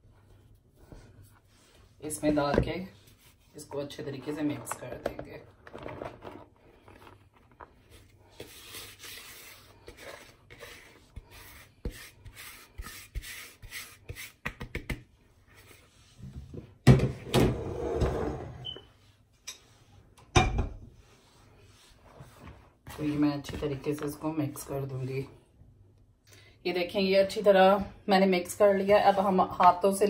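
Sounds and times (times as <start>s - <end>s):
scraper rubbing flour in bowl: 5.8s - 14.4s, 21.0s - 25.3s.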